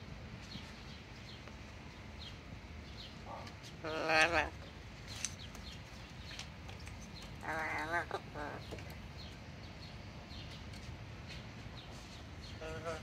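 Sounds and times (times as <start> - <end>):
parrot mumbling: 3.4 - 4.7, 7.3 - 8.9, 12.5 - 13.0.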